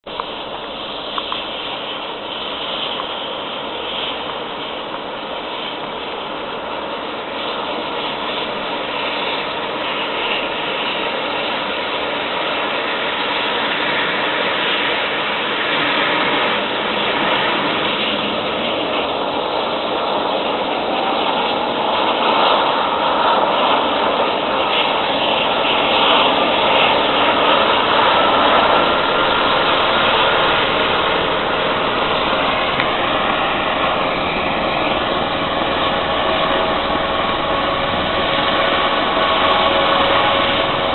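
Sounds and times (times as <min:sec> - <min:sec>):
helicopter turbine and rotor: 0:00.0 - 0:40.9.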